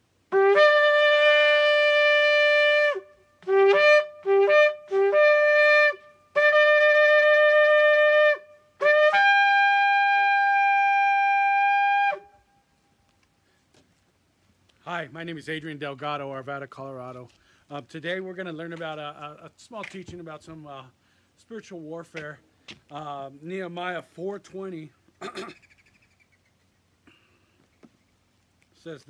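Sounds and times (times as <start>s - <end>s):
shofar blasts: 0.3s - 12.6s.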